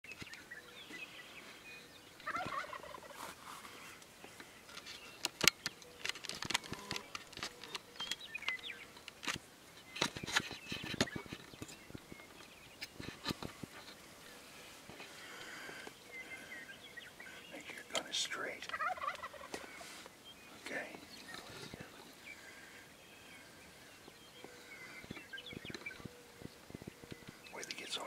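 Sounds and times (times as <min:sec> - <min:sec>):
turkey gobbling: 0:02.2 - 0:03.3, 0:18.7 - 0:19.9.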